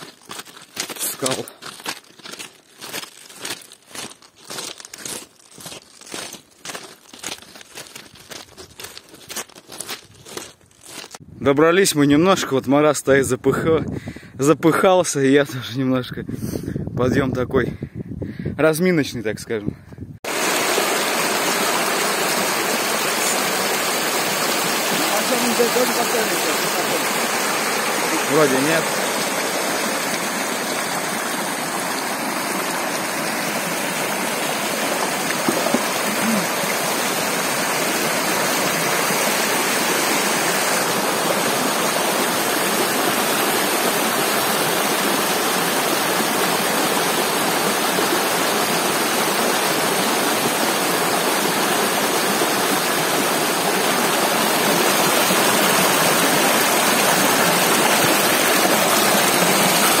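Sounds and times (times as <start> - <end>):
stream rushing over stones: 0.0 - 11.2, 20.3 - 60.0.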